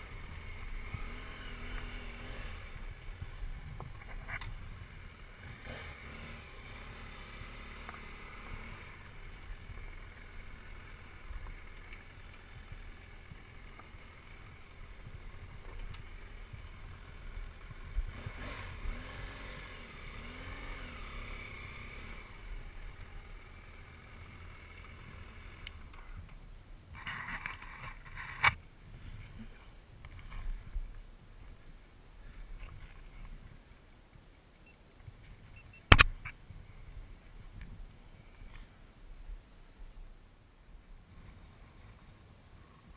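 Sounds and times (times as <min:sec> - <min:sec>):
motorcycle on gravel: 0:00.0 - 0:34.2.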